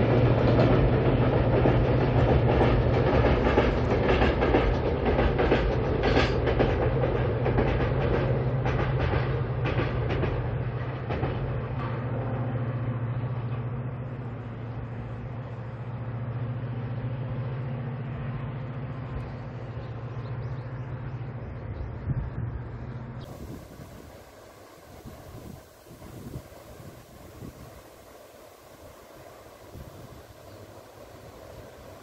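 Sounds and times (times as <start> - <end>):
train wheels clacking: 0.0 - 12.5
train rumbling on bridge: 0.0 - 32.0.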